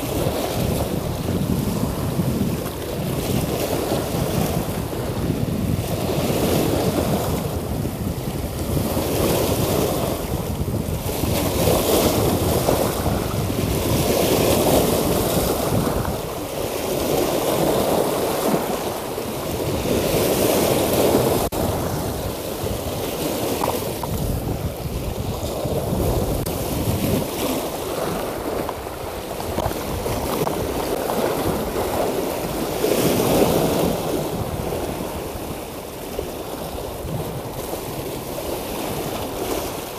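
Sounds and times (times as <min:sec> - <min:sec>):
sea waves washing against rocks: 0:00.0 - 0:39.9
wind rumbling on microphone: 0:00.0 - 0:39.9.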